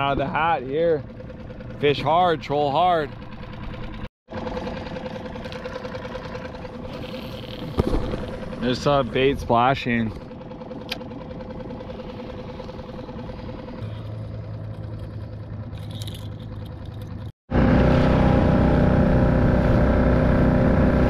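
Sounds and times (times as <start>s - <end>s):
outboard motor running: 0.0s - 21.0s.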